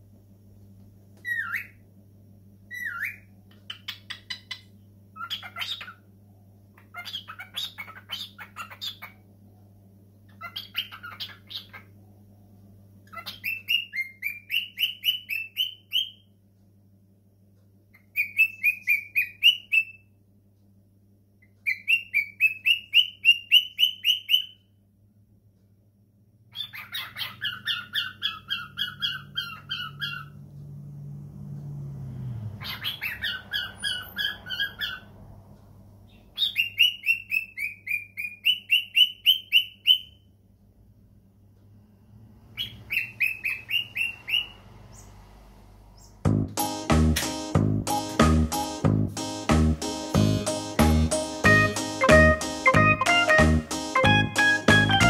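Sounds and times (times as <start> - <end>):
cockatiel whistling chirps: 1.2 - 1.8, 2.7 - 4.6, 5.2 - 6.0, 6.8 - 9.2, 10.4 - 11.9, 13.1 - 16.3, 18.0 - 20.1, 21.4 - 24.6, 26.5 - 30.4, 32.6 - 35.1, 36.4 - 40.2, 42.6 - 45.1.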